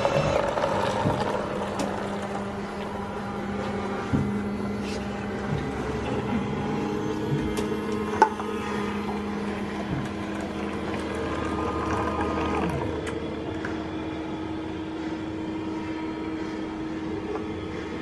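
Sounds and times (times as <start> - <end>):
drink machine pump humming: 0.0 - 18.0.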